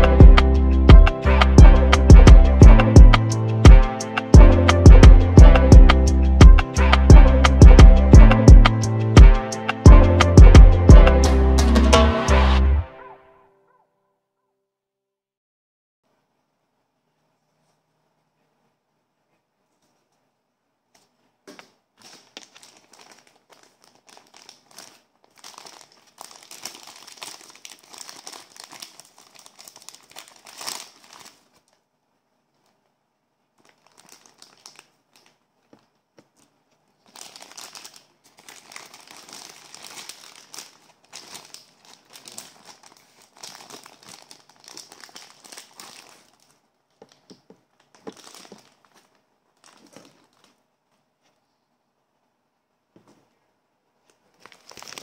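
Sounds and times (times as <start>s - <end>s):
plastic wrapping crinkling: 20.9s - 31.9s, 32.5s - 51.4s, 54.0s - 55.0s.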